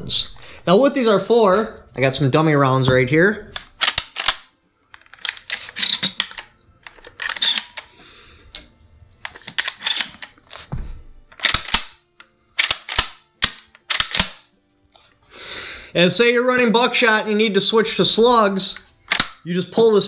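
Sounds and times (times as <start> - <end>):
shotgun shells clicking into magazine: 3.6 - 7.9, 9.2 - 10.5, 11.3 - 14.4, 19.1 - 19.4.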